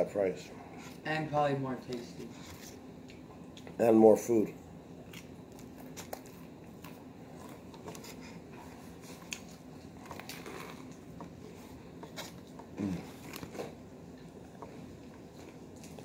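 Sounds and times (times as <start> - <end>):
person chewing: 5.0 - 16.0
person humming low: 12.8 - 13.1.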